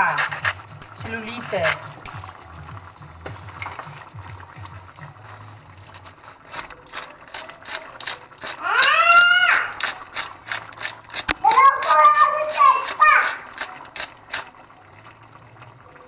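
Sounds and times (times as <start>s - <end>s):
pepper mill ratcheting clicks: 5.8s - 14.5s
high drawn-out voice: 11.4s - 13.5s.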